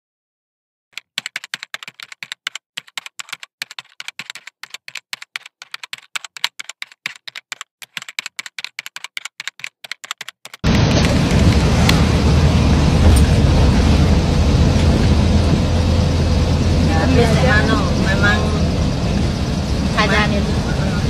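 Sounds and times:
typing on a keyboard: 0.9s - 11.2s.

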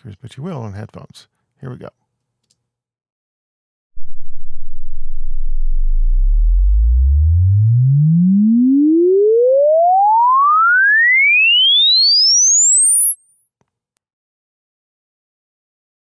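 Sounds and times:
sine tone sweeping upward: 4.0s - 13.6s.

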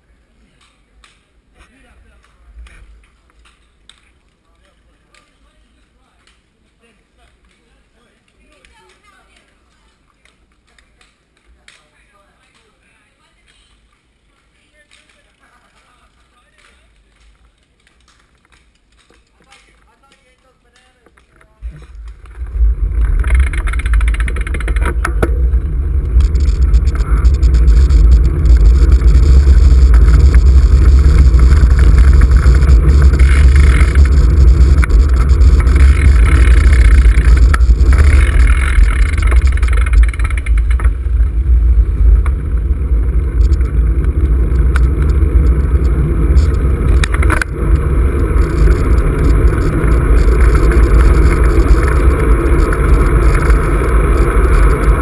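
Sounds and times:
wind buffeting microphone: 21.6s - 55.0s.

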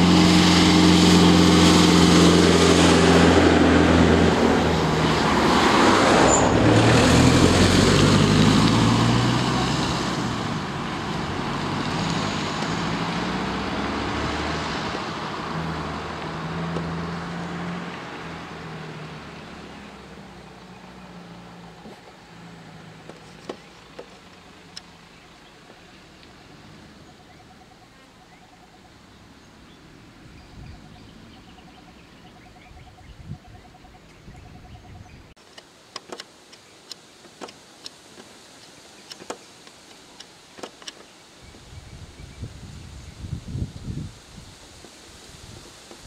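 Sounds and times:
distant vehicle engine running: 0.0s - 33.3s
vehicles passing: 0.0s - 46.0s.

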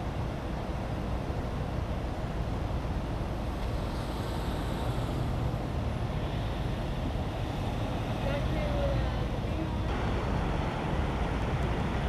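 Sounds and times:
vehicle engines running: 2.6s - 12.0s.

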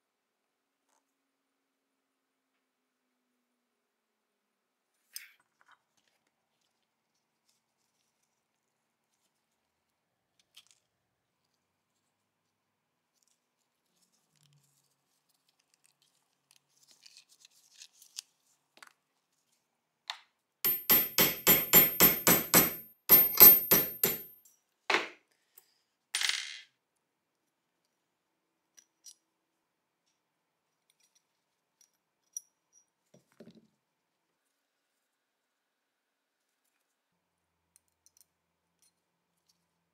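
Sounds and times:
faint clicks of parts handled: 5.0s - 8.4s, 10.4s - 11.6s, 13.1s - 20.3s, 30.0s - 33.5s, 37.7s - 39.7s
hammer tapping metal punch: 20.7s - 24.4s.

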